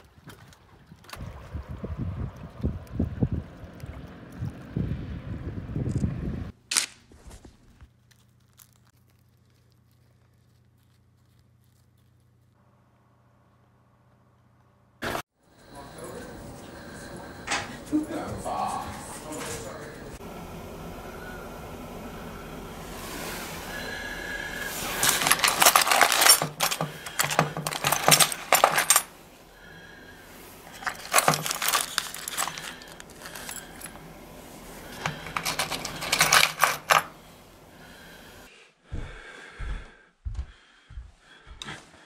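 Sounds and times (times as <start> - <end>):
metal lures jangling in plastic box: 24.9 - 29.1, 30.7 - 34.0, 34.9 - 37.1.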